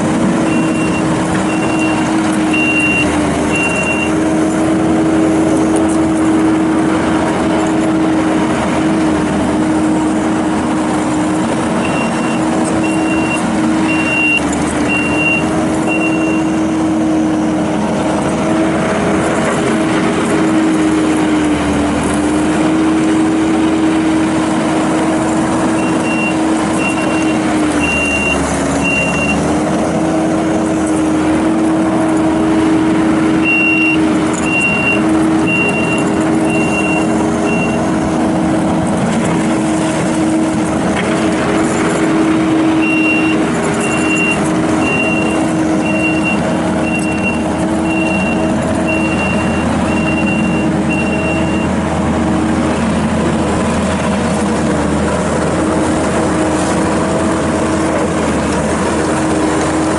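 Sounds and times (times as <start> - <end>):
diesel engine running: 0.0 - 59.9
reversing alarm beeping: 0.4 - 4.2, 11.8 - 16.6, 25.8 - 29.5, 33.4 - 37.9, 42.7 - 51.8.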